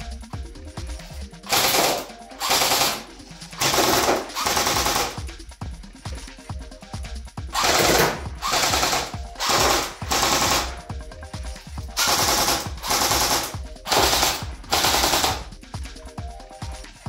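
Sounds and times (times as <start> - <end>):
airsoft gun firing bursts: 1.5 - 5.3, 7.5 - 10.9, 11.9 - 15.6.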